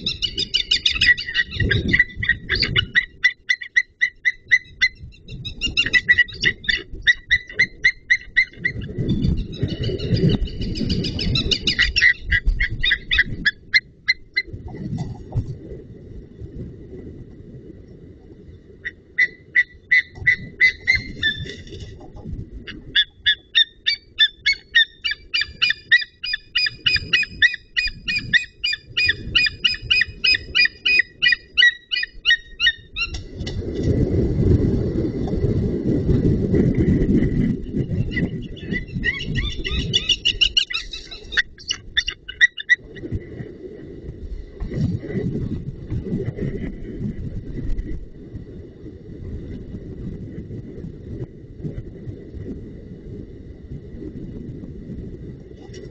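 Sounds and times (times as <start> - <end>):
eagle calling: 0.0 - 14.5, 18.8 - 21.6, 22.7 - 33.2, 38.0 - 42.9
wind rumble on microphone: 0.0 - 55.9.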